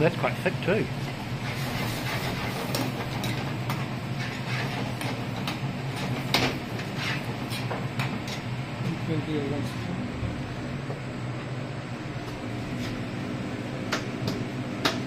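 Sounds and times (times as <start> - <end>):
steady hiss and hum: 0.0 - 15.0.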